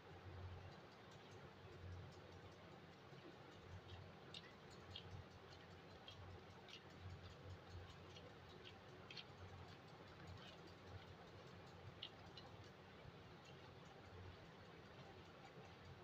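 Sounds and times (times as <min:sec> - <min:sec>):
sticky clicks of kneaded dough: 0:03.5 - 0:14.0.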